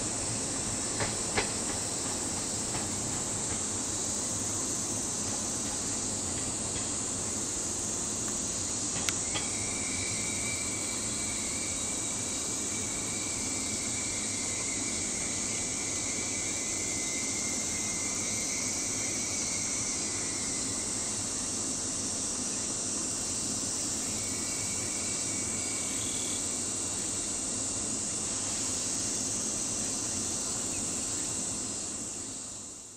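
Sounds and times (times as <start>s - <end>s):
cicadas droning: 0.0s - 32.9s
thin steady high tone: 8.4s - 32.8s.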